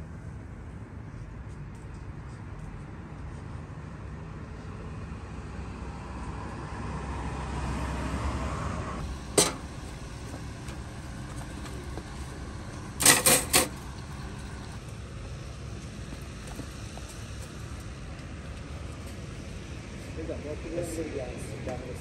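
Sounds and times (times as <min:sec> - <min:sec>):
traffic rumble: 0:00.0 - 0:22.0
vehicle passing: 0:05.4 - 0:22.0.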